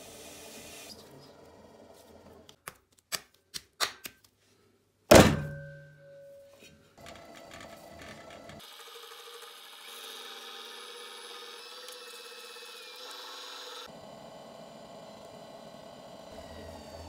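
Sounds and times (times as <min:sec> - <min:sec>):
pottery wheel running: 0:07.0 - 0:17.0.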